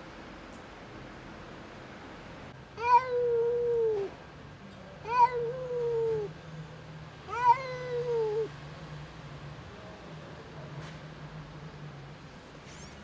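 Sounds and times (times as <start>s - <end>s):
cat meowing: 2.8s - 4.1s, 5.0s - 6.3s, 7.3s - 8.5s.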